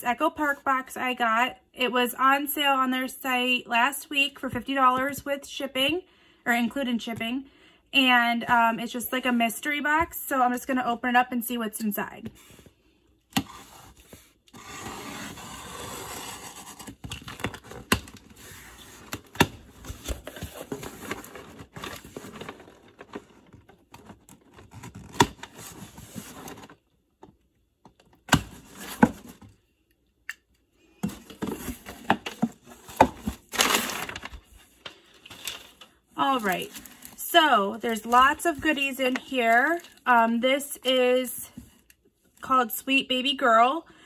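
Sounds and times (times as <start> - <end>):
cardboard clicks and scrapes: 13.3 - 26.8
packing tape tearing: 14.5 - 26.6
packing paper rustling: 15.7 - 26.8, 31.2 - 37.2, 37.8 - 40.0.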